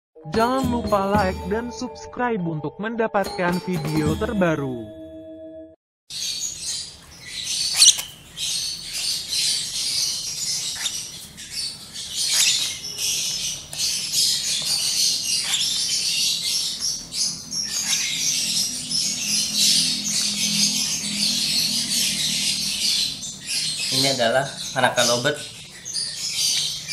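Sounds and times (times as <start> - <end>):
bird chicks chirping: 6.1 - 26.9.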